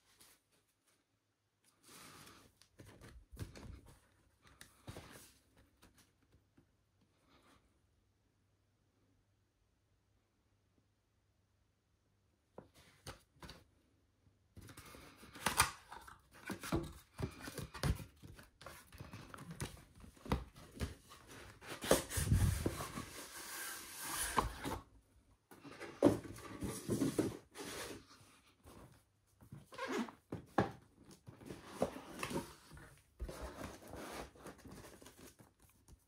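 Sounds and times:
packaging rustling and scraping: 15.8 - 24.9, 25.6 - 28.2, 29.7 - 35.6.

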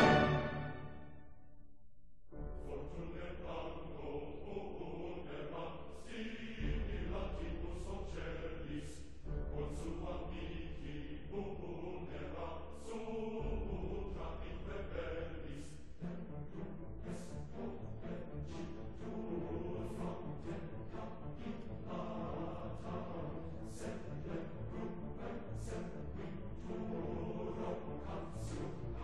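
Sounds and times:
choir chanting: 0.0 - 1.3, 2.5 - 29.0
low steady accompaniment: 6.6 - 12.6.

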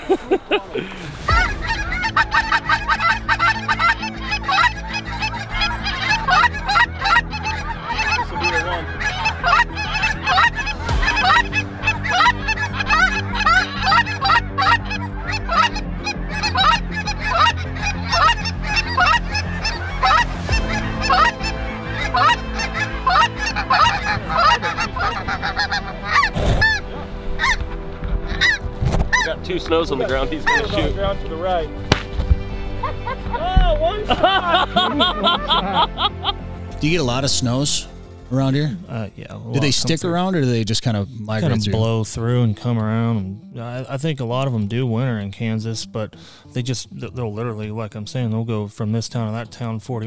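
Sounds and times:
geese honking: 1.2 - 31.8, 34.0 - 38.6.

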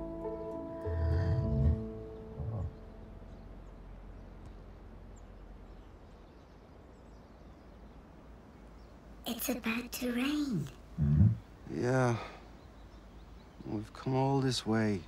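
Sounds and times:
soft music: 0.0 - 5.6
faint low hum: 0.1 - 15.0.

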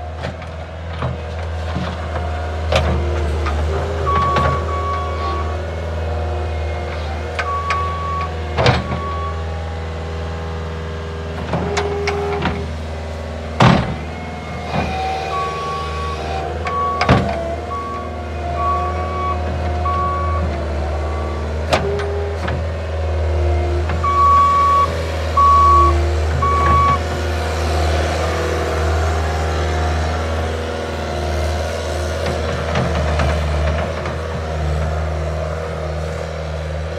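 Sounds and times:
diesel engine running: 0.0 - 36.9
backup alarm beeping: 24.0 - 27.0.

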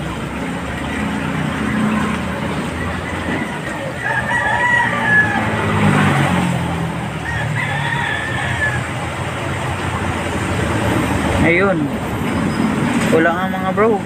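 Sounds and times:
rooster crowing: 3.0 - 6.3, 7.1 - 9.2.

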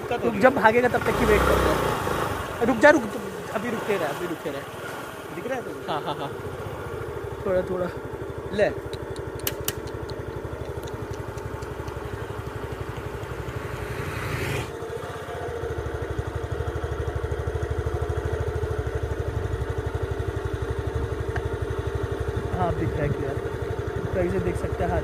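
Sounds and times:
vehicle engine idling: 0.0 - 25.0
light clicks: 8.8 - 12.2.

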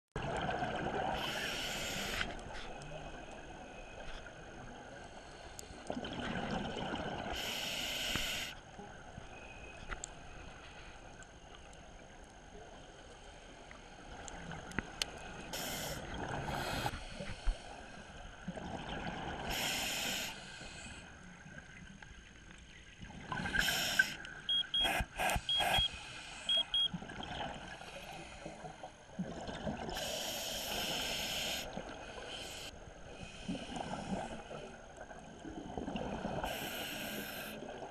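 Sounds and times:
regulator hiss: 1.2 - 2.3, 7.4 - 8.6, 15.2 - 17.7, 19.5 - 21.0, 23.5 - 26.8, 30.0 - 34.4, 36.5 - 37.6
short high beeps: 23.6 - 27.0.

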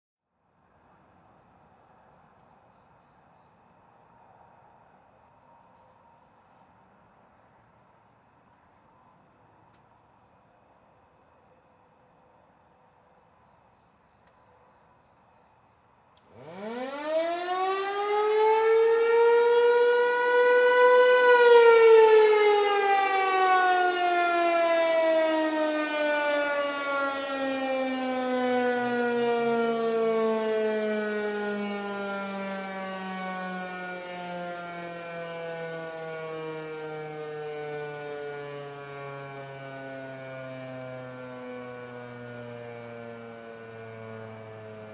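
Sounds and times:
mechanical warning siren wailing: 16.2 - 44.9.

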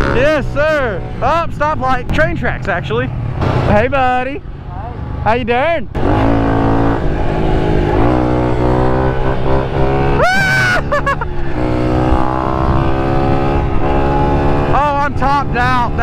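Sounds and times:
motorbike engine running hard: 6.0 - 16.0
high-pitched shout: 10.2 - 10.9.

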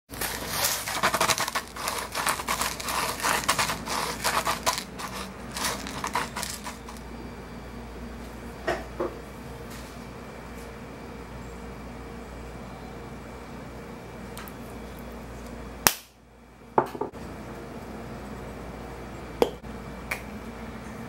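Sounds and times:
salt grinder crunching: 0.1 - 7.1.

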